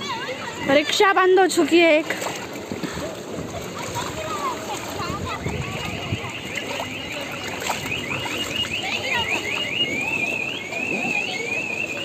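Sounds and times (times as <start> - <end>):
car alarm chirping and warbling: 5.7 - 12.0.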